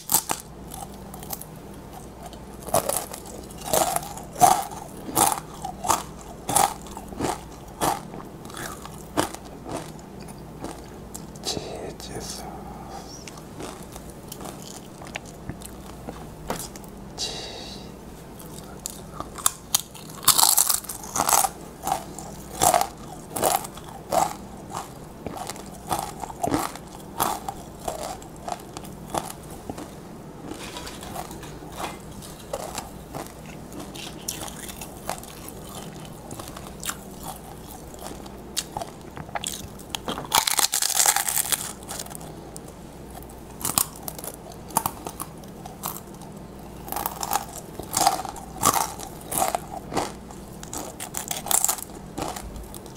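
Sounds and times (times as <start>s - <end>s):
crunching tortilla chips: 0.0s - 11.5s, 13.3s - 16.8s, 18.4s - 52.9s.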